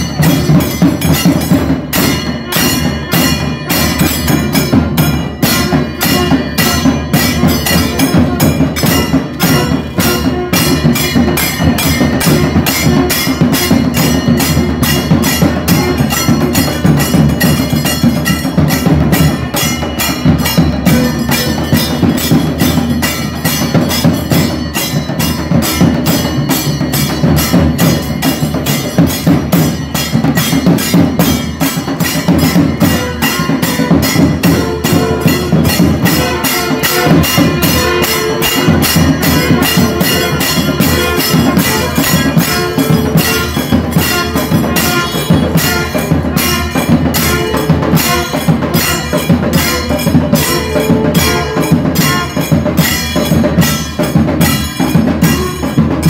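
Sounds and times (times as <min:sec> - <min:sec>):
ensemble of drums beating: 0:00.0 - 0:56.0.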